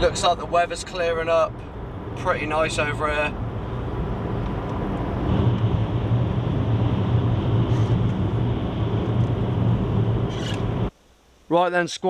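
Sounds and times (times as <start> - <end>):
car engine hum: 0.0 - 10.9
tyre noise on wet road: 0.0 - 10.9.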